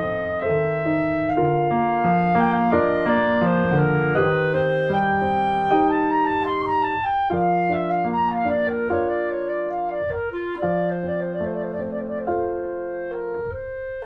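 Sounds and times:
slow instrumental music: 0.0 - 14.0.

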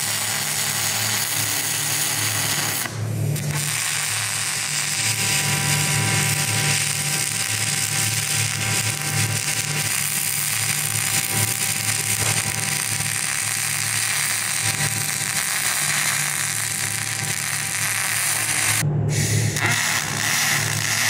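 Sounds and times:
welding arc hissing and buzzing: 0.0 - 21.0.

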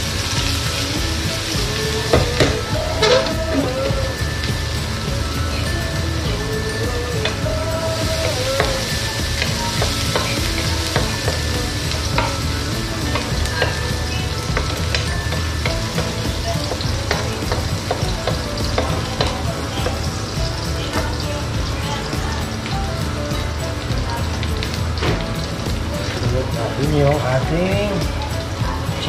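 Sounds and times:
garlic sizzling in hot oil: 0.0 - 29.0.

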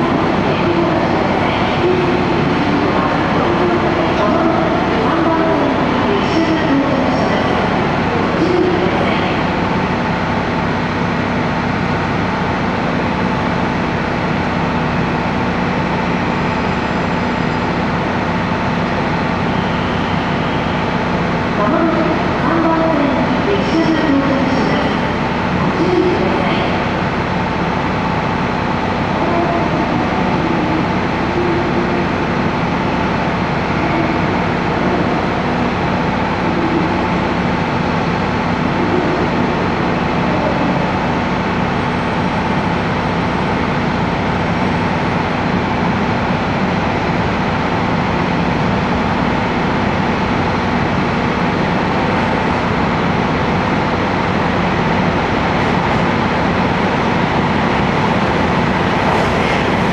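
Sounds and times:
constant hum: 0.0 - 59.9
rolling train cars: 0.0 - 59.9.

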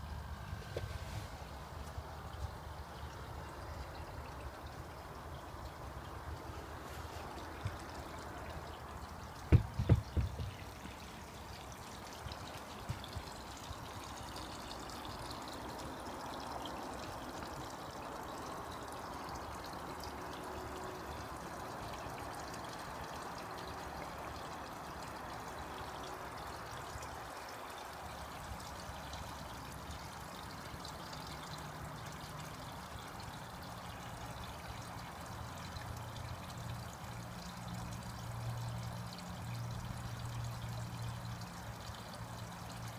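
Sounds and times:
water pouring into pond: 0.0 - 42.9
dull knocks: 9.5 - 11.0.

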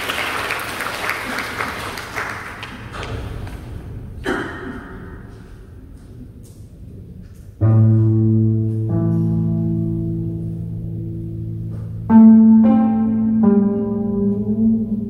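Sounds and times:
applause: 0.0 - 3.7
low plucked koto notes: 7.6 - 15.0.

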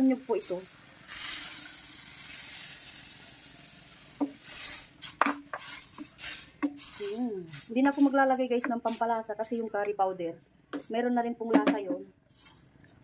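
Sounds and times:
liquid hissing in hot pan: 0.1 - 9.1
wooden spoon scraping metal pan: 4.2 - 9.7.

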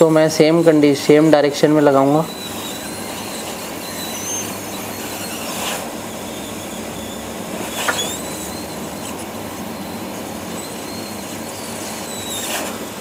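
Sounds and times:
steady background hum: 0.0 - 13.0
faint high squeaks: 1.9 - 12.9
short sharp scrape: 5.0 - 5.9, 7.6 - 8.5, 11.8 - 12.8.

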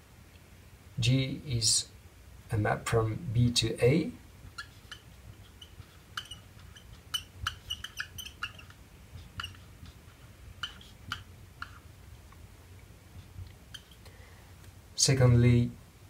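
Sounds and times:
faint low hum: 0.0 - 16.0
marker squeaking on whiteboard: 4.3 - 12.4, 13.0 - 14.1.

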